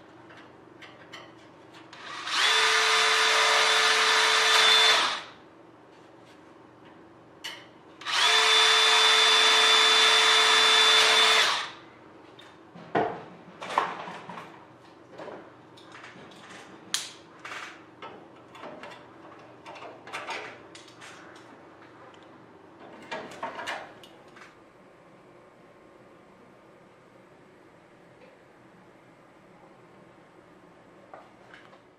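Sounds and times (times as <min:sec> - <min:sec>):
cordless drill drilling: 0:02.0 - 0:05.3, 0:08.0 - 0:11.8.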